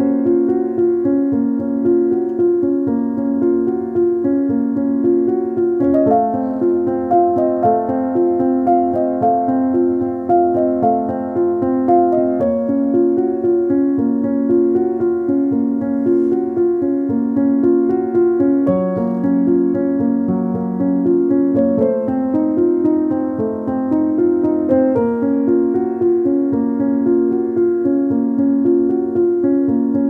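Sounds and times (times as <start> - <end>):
gentle piano music: 0.0 - 30.0.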